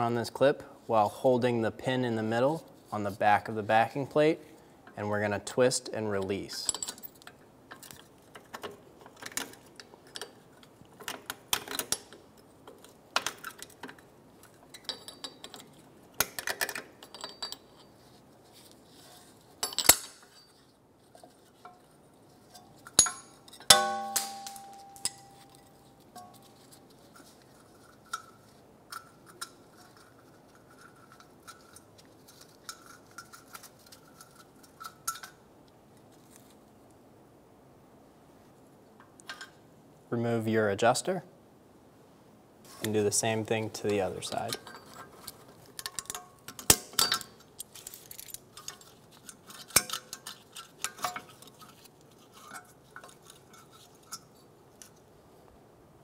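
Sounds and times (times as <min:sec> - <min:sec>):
metal brake parts clinking: 0:19.6 - 0:20.6, 0:22.5 - 0:26.6
sharp metal clank: 0:23.0 - 0:25.6.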